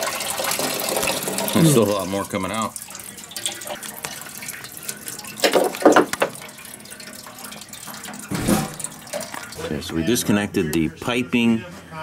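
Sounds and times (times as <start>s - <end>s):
coolant pouring and splashing: 0.0s - 9.8s.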